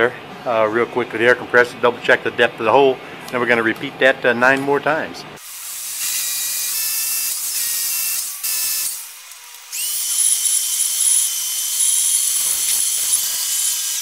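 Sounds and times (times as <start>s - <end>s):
shop vacuum whining: 5.4s - 14.0s.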